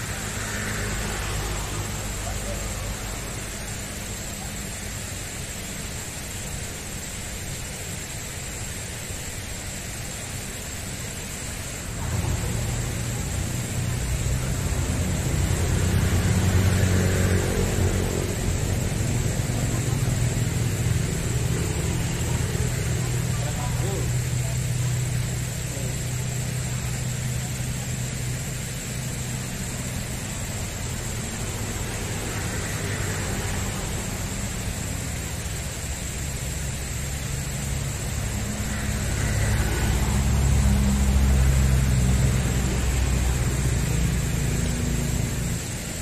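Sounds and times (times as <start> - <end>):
vehicle engine passing: 0.0 - 5.6, 11.5 - 46.0
road traffic rumble: 0.0 - 46.0
steady outdoor hiss: 0.0 - 46.0
thin high whine: 0.0 - 46.0
low rumble: 11.8 - 24.6.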